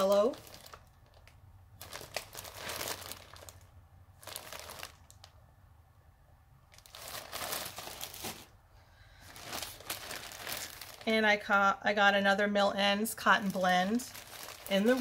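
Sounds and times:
plastic bag crinkling: 0.0 - 5.4, 6.6 - 8.6, 9.2 - 11.5, 13.2 - 15.0.

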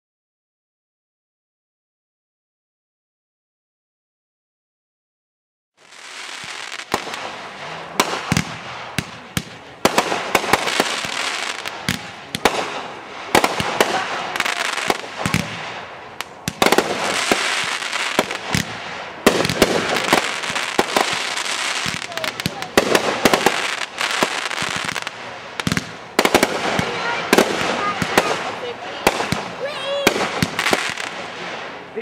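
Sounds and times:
fireworks bangs: 5.8 - 32.0
fireworks hissing: 5.8 - 32.0.

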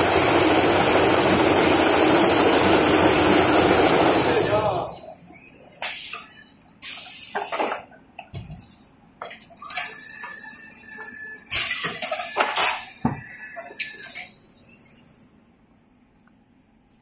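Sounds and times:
loud rushing bursts: 0.0 - 5.0.

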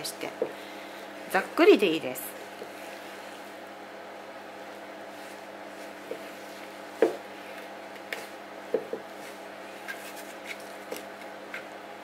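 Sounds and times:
spatula folding sticky dough: 2.3 - 11.9.

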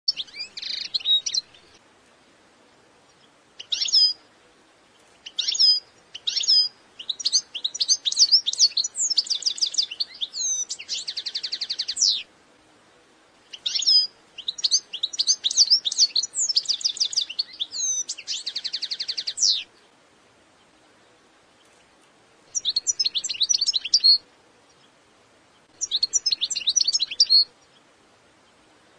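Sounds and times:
finch singing: 0.1 - 1.8, 3.0 - 4.3, 4.9 - 12.3, 13.4 - 19.9, 22.5 - 27.8.

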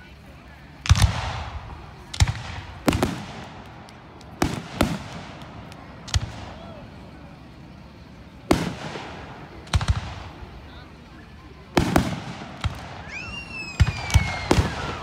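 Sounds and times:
firework shells booming: 0.8 - 11.0, 11.7 - 15.0.

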